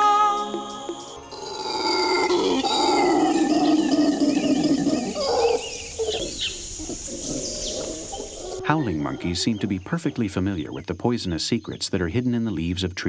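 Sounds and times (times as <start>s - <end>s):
howler monkey howling: 1.3s - 10.3s.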